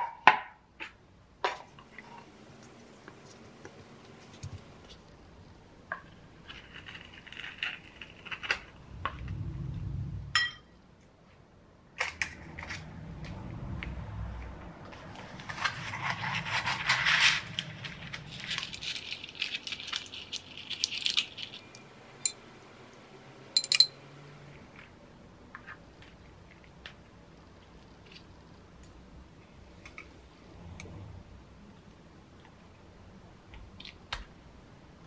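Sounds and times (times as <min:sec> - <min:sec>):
rustling and crinkling: 0:06.0 - 0:09.4, 0:14.8 - 0:21.7
metal tongs clicking: 0:23.6 - 0:23.9.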